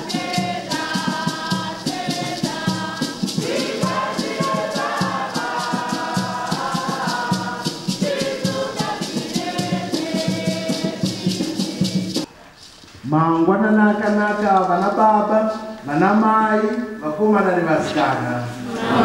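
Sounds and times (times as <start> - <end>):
choir singing a hymn: 0.0 - 12.3, 18.6 - 19.0
hand rattles shaking: 0.0 - 12.3.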